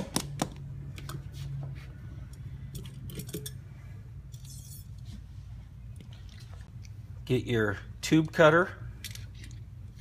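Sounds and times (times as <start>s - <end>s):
low steady hum: 0.0s - 10.0s
metal tools clinking: 2.7s - 3.7s.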